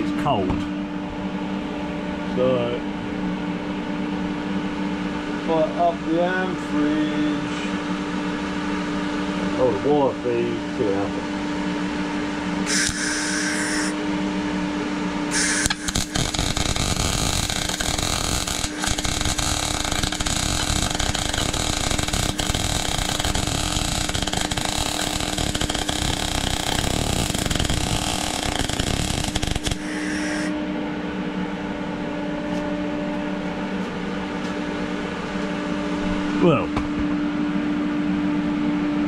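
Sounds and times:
steady hum: 0:00.0 - 0:39.0
welding arc crackling: 0:12.7 - 0:13.9, 0:15.3 - 0:30.5.

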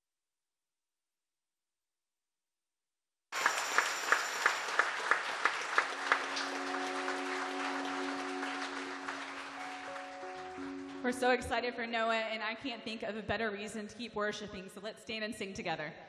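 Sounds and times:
congregation applause: 0:03.3 - 0:11.5
person clapping loudly nearby: 0:03.4 - 0:11.0
soft sustained music chord: 0:03.7 - 0:11.9.

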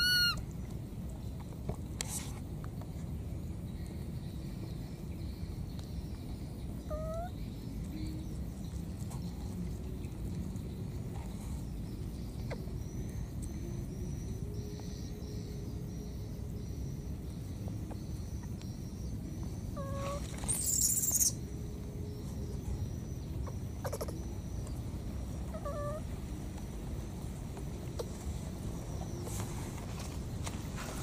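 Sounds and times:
baby monkeys squeaky calls: 0:00.0 - 0:00.4, 0:06.8 - 0:07.4, 0:19.8 - 0:21.4, 0:23.4 - 0:24.4, 0:25.5 - 0:26.1
low background rumble: 0:00.0 - 0:31.0.

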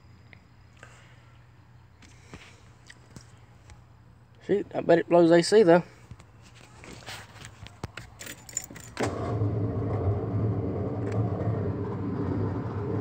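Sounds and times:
key rattle: 0:08.0 - 0:09.0.

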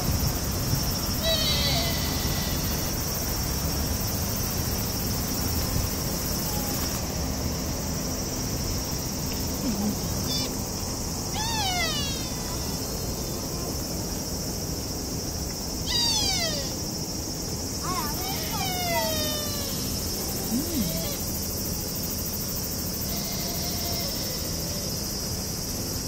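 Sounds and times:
high-pitched insect drone: 0:00.0 - 0:26.0
short calls falling in pitch: 0:01.2 - 0:03.0, 0:11.3 - 0:13.0, 0:15.8 - 0:16.8.

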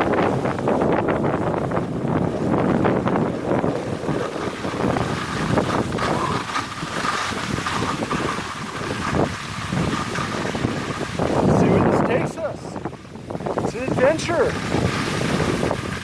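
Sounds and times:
wind buffeting microphone: 0:00.0 - 0:16.0
skis hissing over snow: 0:03.4 - 0:11.9, 0:13.3 - 0:16.0.

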